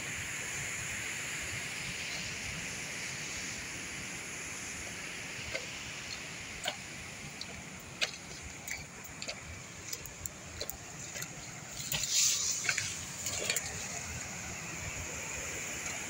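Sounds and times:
waterfall rushing: 0.7s - 16.0s
twigs and leaves rustling underfoot: 7.4s - 14.7s.

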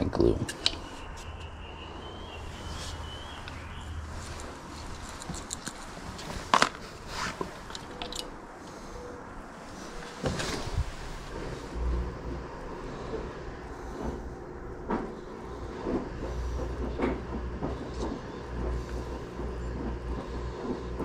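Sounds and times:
plastic pipe fittings clicking: 0.5s - 0.8s
low steady rumble: 9.6s - 21.0s.

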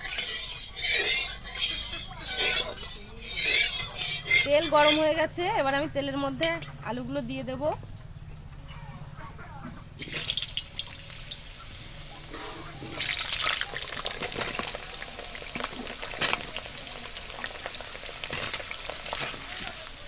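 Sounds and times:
potatoes sizzling in hot oil: 10.0s - 20.0s.

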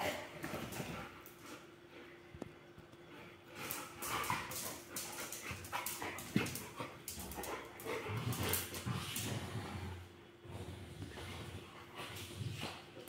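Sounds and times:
dogs growling and panting: 3.1s - 13.0s.

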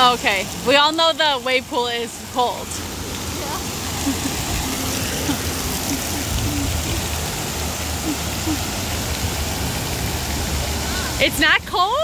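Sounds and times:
small waves washing onto beach: 0.0s - 12.0s.

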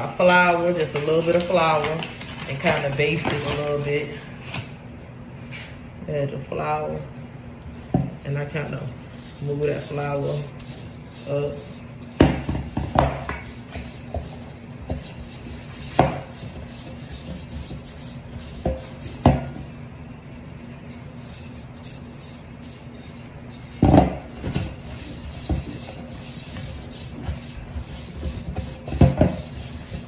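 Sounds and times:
soft rubbing: 6.6s - 30.0s.

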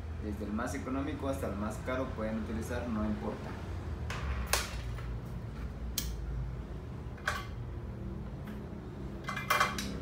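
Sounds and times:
small tools clicking and clinking: 8.4s - 10.0s.

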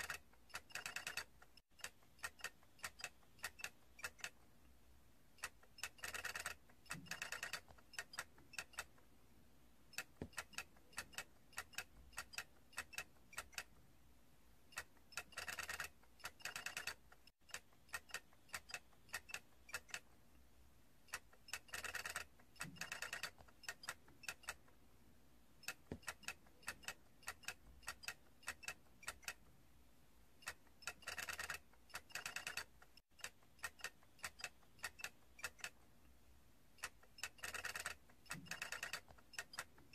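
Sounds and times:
plastic toy ticking and clicking: 0.0s - 4.6s, 5.3s - 9.1s, 9.9s - 13.9s, 14.7s - 20.3s, 21.0s - 24.8s, 25.6s - 29.6s, 30.4s - 36.0s, 36.7s - 39.9s.

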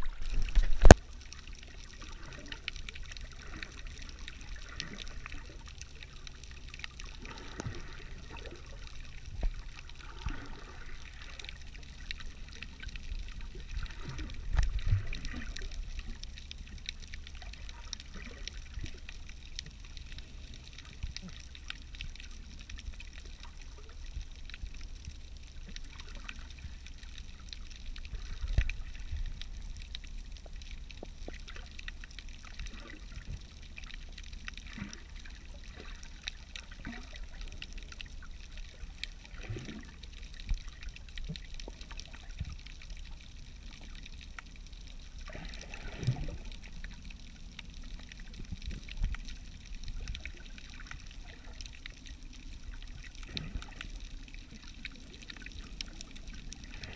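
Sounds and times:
faint crackles and clicks: 0.0s - 56.9s
low underwater rumble: 0.0s - 56.9s
water gurgles: 0.0s - 56.9s.

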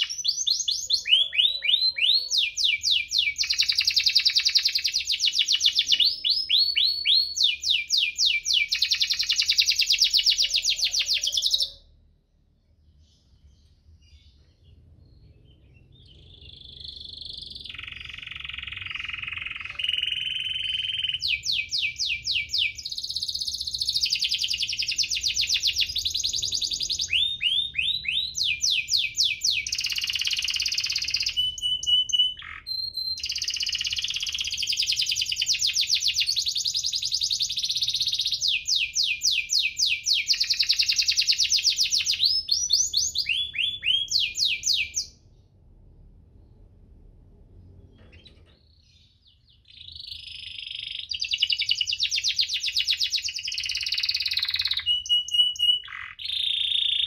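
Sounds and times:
canary singing: 0.0s - 45.4s, 47.8s - 57.0s.

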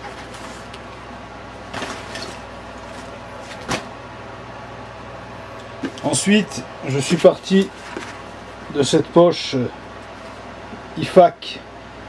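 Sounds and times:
steady low hum: 0.0s - 12.0s
nylon pouches rustling: 6.9s - 8.6s.

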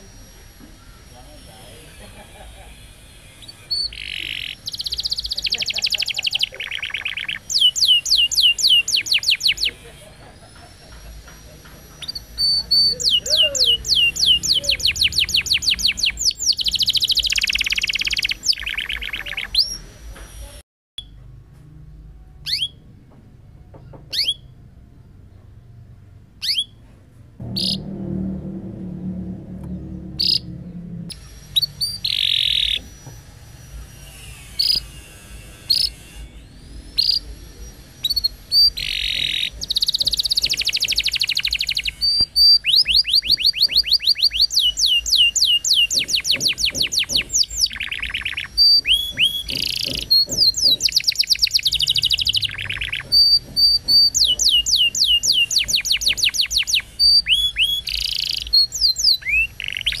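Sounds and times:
canary singing trills: 0.0s - 21.2s, 22.4s - 22.8s, 23.8s - 24.6s, 26.4s - 26.8s, 27.4s - 28.0s, 29.7s - 60.0s.

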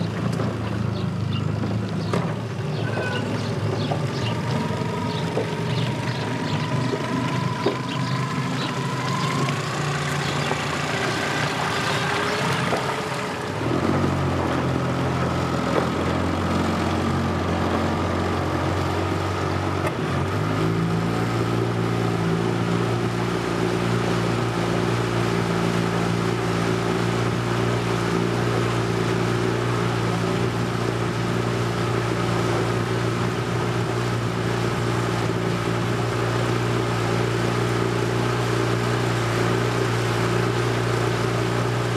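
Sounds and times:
outboard motor drone: 0.0s - 41.9s.

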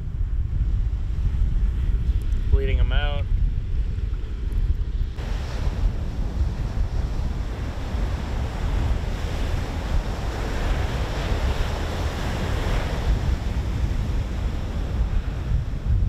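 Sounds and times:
wind rumbling on microphone: 0.0s - 16.0s
ocean surf breaking: 5.2s - 16.0s.

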